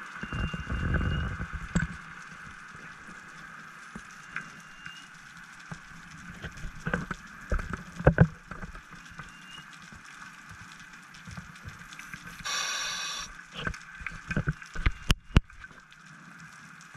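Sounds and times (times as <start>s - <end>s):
clicks and crackles: 0.0s - 16.9s
faint underwater hum: 0.2s - 16.8s.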